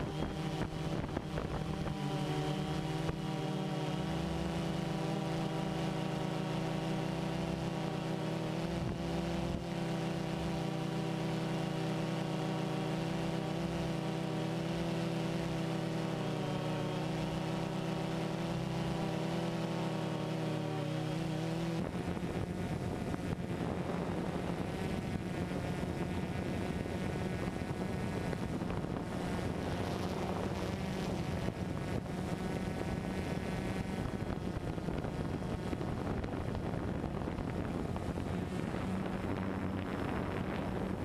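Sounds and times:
wind noise on microphone: 0.0 - 3.3, 21.7 - 41.0
drone propellers buzzing: 0.0 - 41.0.

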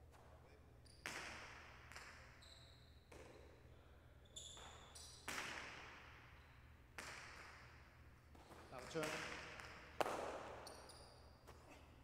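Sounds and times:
ball cracking against court walls: 7.0 - 7.7, 8.3 - 11.6.

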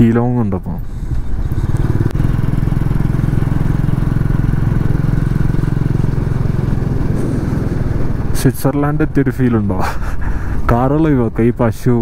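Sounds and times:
motorcycle engine running: 0.8 - 9.7.

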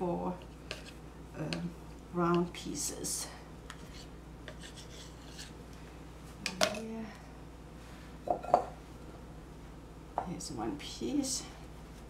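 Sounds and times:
knife scraping countertop: 3.7 - 5.5.

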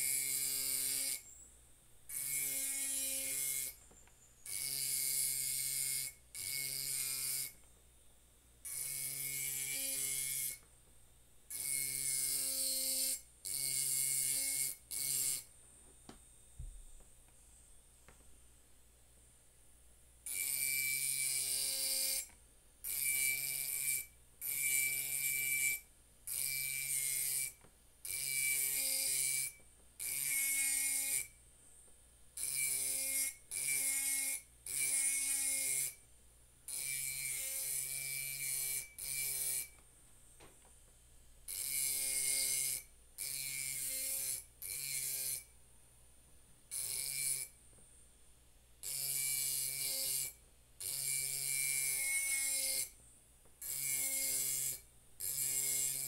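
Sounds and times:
rotary tool grinding glass: 0.0 - 1.4, 2.1 - 7.6, 8.7 - 10.6, 11.5 - 15.5, 20.3 - 22.3, 22.9 - 31.3, 32.4 - 36.0, 36.7 - 39.8, 41.5 - 45.5, 46.7 - 47.6, 48.8 - 53.0, 53.6 - 56.0.

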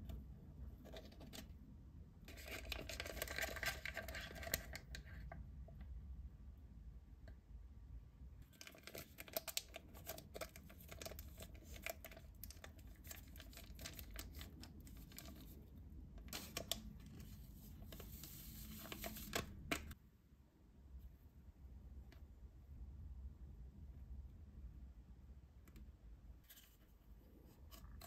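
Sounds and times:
plastic packaging crinkling: 2.3 - 5.0.

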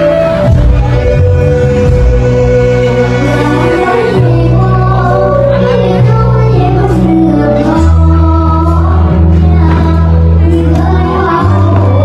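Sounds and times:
amplified backing music with bass: 0.0 - 12.0
girl singing into a microphone: 3.1 - 12.0.

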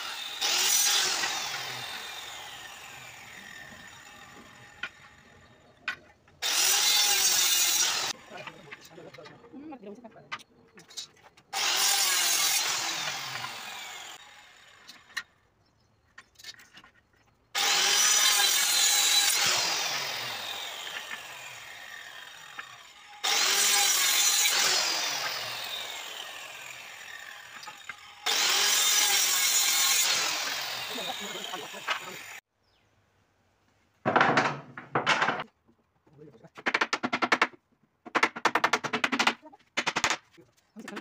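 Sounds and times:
circular saw cutting wood: 0.0 - 9.9, 11.0 - 15.3, 17.5 - 32.4
wooden clicks and knocks: 34.0 - 41.0.

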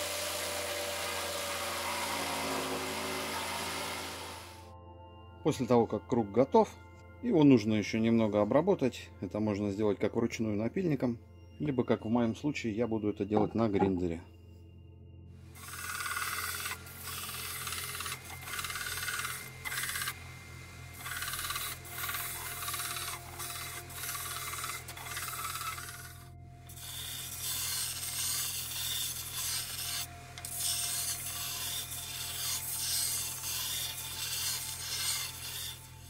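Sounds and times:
belt grinder motor hum: 0.0 - 4.6, 15.6 - 36.0
plywood rasping on grinder belt: 0.0 - 4.6, 15.6 - 36.0.

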